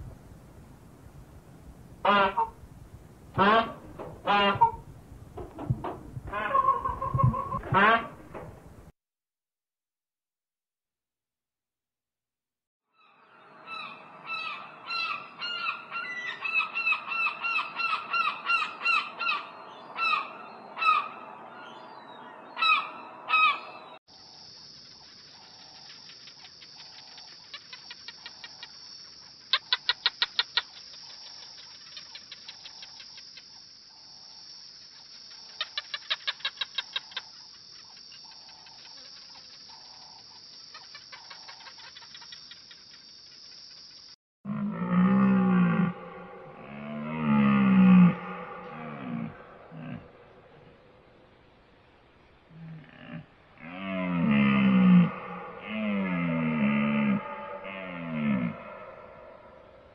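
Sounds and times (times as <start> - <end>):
fast clicking: 24.7 - 33.6, 34.8 - 44.1.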